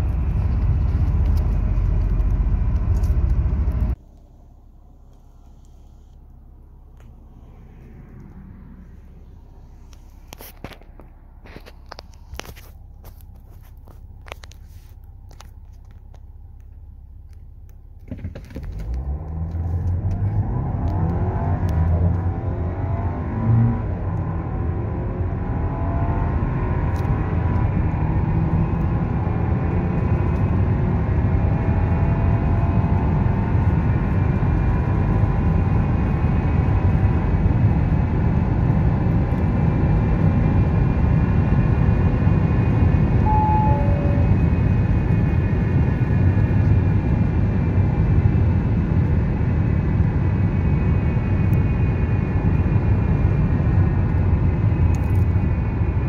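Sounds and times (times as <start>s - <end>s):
car engine accelerating: 0.0s - 56.0s
wind and tyre noise: 0.0s - 56.0s
two-note electronic chime: 43.2s - 44.4s.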